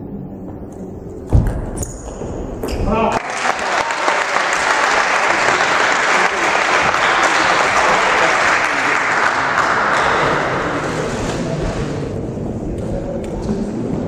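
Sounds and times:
spectators applauding: 3.1 - 11.0.

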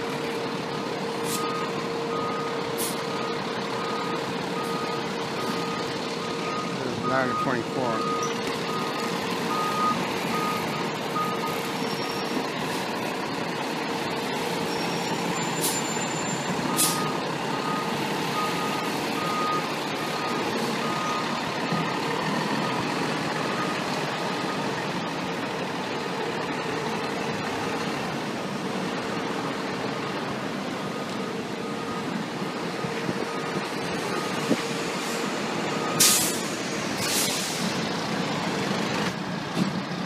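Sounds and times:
diesel engine running: 0.0 - 40.0
reversing alarm beeping: 1.2 - 12.4, 14.5 - 24.7, 30.8 - 36.4
short sharp hisses: 36.0 - 36.4, 37.0 - 37.7.

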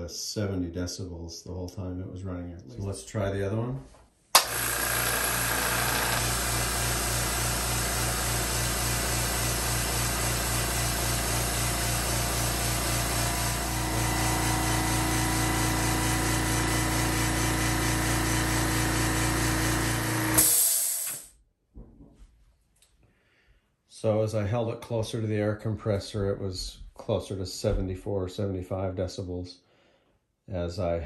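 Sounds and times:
air compressor pumping: 4.4 - 21.3
compressor air hiss: 6.2 - 21.3.

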